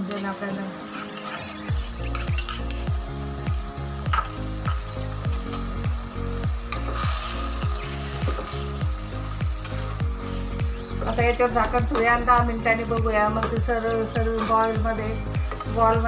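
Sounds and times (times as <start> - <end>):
oil sizzling in a pan: 0.0 - 16.0
spoon stirring in a pan: 0.1 - 2.9, 6.7 - 8.8
background music with beat: 1.2 - 16.0.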